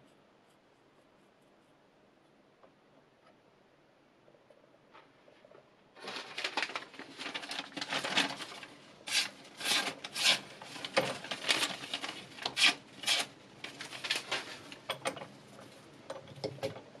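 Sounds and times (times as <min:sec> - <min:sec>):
knife slicing paper: 0:06.0 - 0:14.5.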